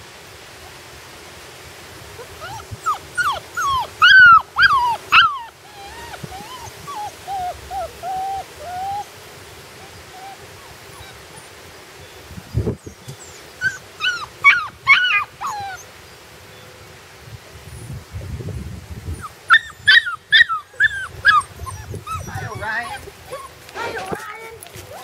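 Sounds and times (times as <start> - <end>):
puppy whimpering: 2.2 - 9.1, 9.8 - 11.5, 13.6 - 15.9, 19.2 - 25.0.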